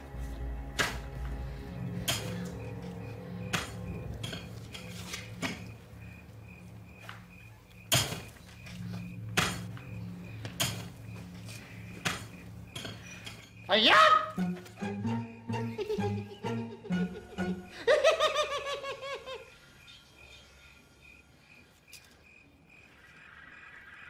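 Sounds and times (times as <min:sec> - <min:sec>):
low pulsing music drone: 0:00.0 - 0:07.7, 0:08.6 - 0:13.2, 0:14.4 - 0:17.9
sharp metallic knocks and clinks: 0:02.0 - 0:02.8, 0:03.5 - 0:05.7, 0:07.8 - 0:13.7.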